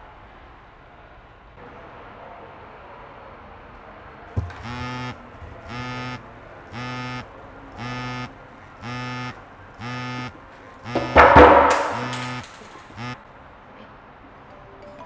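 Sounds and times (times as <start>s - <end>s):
buzzer short buzzes: 4.4s - 13.2s
sudden loud noise: 10.9s - 13.2s.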